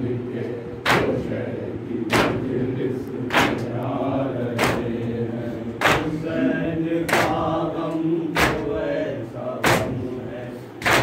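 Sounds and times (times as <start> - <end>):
men chanting in unison: 0.0 - 11.0
hands slapping chests: 3.3 - 3.7, 5.8 - 6.2, 8.4 - 8.8, 10.8 - 11.0.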